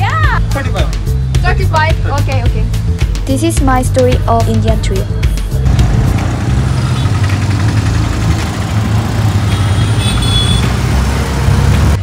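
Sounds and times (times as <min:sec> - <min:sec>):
street traffic: 0:00.0 - 0:12.0
auto-rickshaw engine rumbling: 0:04.4 - 0:12.0.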